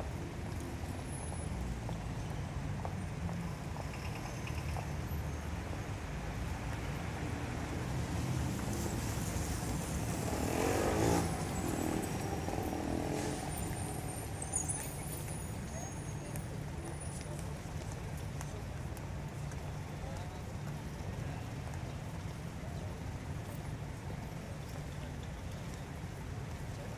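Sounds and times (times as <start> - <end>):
road traffic: 0.0 - 26.9
vehicle passing close: 8.7 - 14.2.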